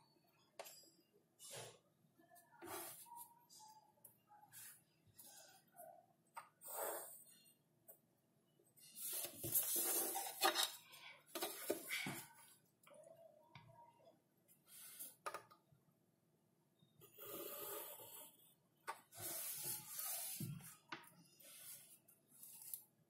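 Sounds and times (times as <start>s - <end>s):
pencil and ruler rubbing on paper: 19.1s - 20.5s.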